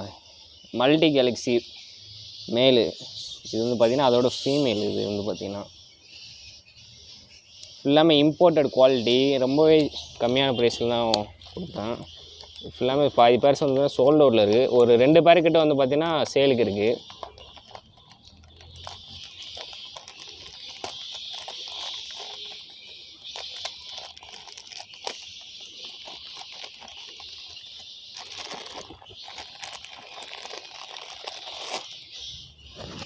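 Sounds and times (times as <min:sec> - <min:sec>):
plastic bag crinkling: 0:08.8 - 0:33.0.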